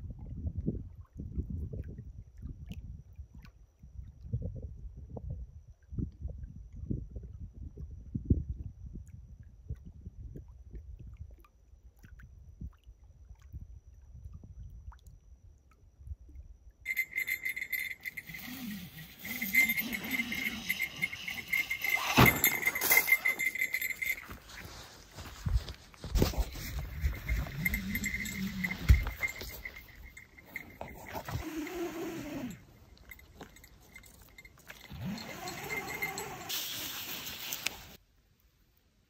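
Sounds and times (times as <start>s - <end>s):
wind rumble on microphone: 0.0s - 11.5s, 12.2s - 15.2s, 19.0s - 32.0s
insects chirring: 16.9s - 38.0s.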